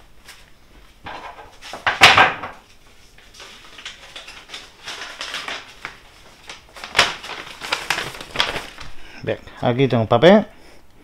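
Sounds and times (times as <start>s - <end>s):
paper rustling: 2.7s - 9.1s.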